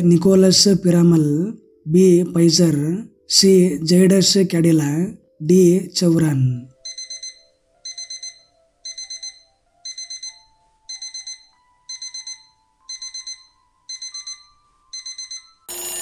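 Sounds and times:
bright ringing: 6.9 - 16.0.

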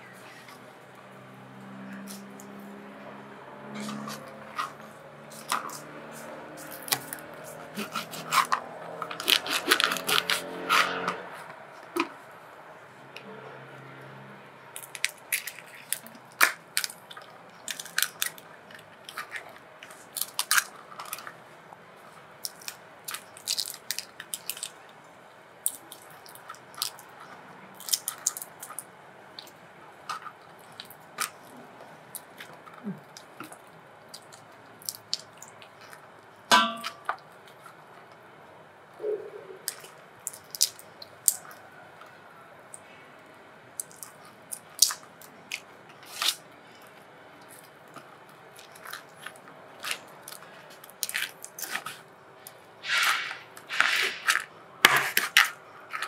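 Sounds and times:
prawn shells cracking: 3.8 - 11.0, 14.8 - 21.3, 22.4 - 24.9, 25.6 - 28.9, 39.7 - 41.7.

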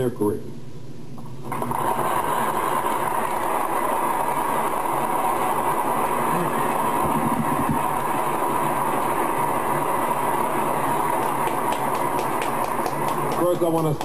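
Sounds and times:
audience applauding: 10.4 - 14.0.

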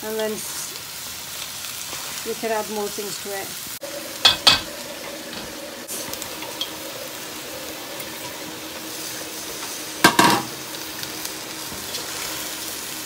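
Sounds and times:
food sizzling in a frying pan: 0.0 - 13.0
loud clatter against pan: 10.0 - 10.5.

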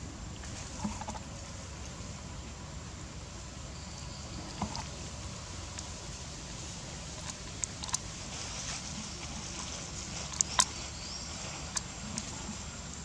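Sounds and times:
steady low hiss: 0.0 - 13.0
crackles and snaps: 7.2 - 12.6.

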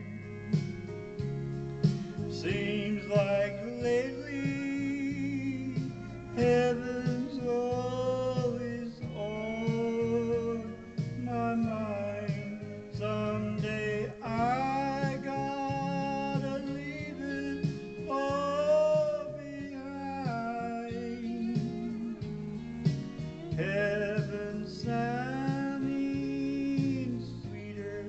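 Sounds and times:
guitar accompaniment: 0.0 - 28.0
man singing into a microphone: 2.0 - 28.0.

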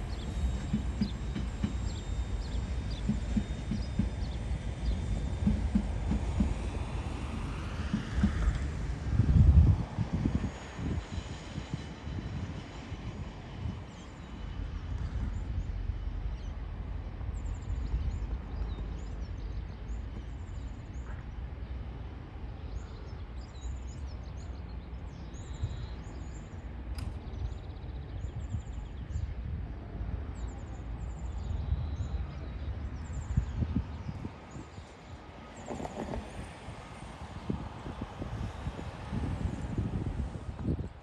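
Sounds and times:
sharp click: 26.9 - 27.2.

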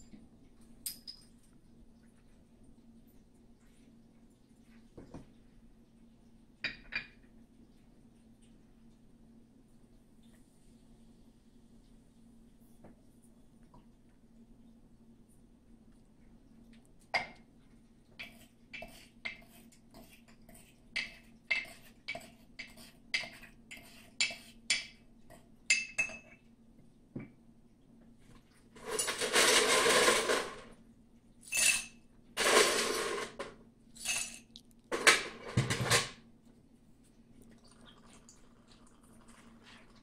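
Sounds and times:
ice rattling into a glass: 34.0 - 36.0.

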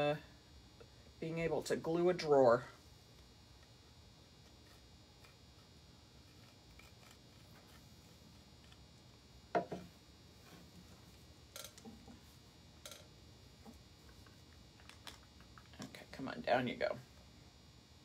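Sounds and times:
objects knocking on table: 9.6 - 9.9.

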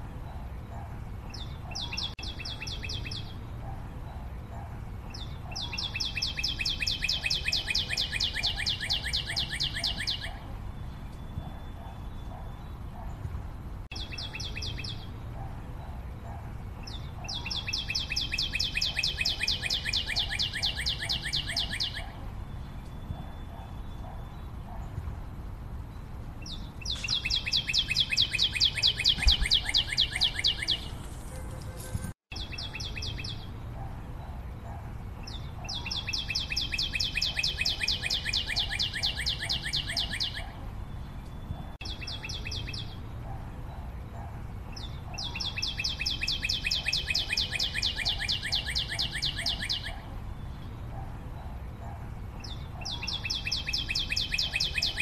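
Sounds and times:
bird trilling: 5.1 - 10.4, 16.9 - 22.2, 26.4 - 31.8, 35.4 - 40.6, 45.1 - 50.0.

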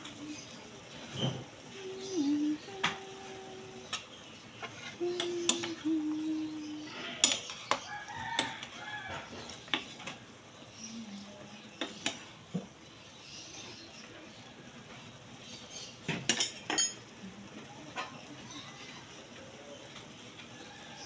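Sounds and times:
rooster crowing: 7.8 - 9.4, 20.5 - 21.0.

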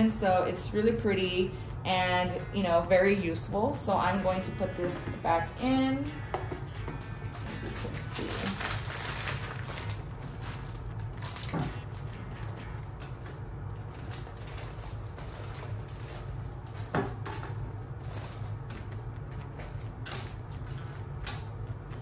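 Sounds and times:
steady low hum: 0.0 - 22.0
fabric bag rustling: 7.4 - 12.0.

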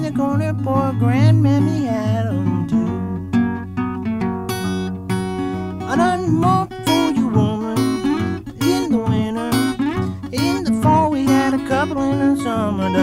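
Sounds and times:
acoustic blues guitar: 0.0 - 13.0.

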